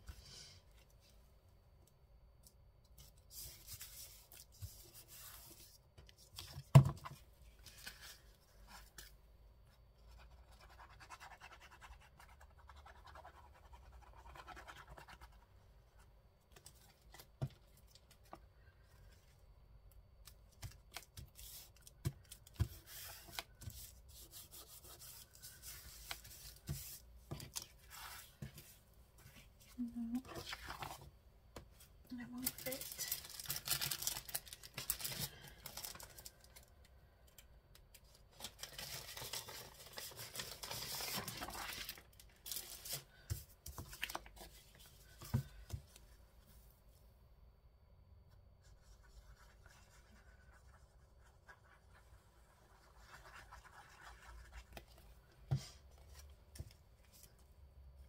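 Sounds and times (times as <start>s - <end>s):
paper rustling: 38.3s - 45.4s.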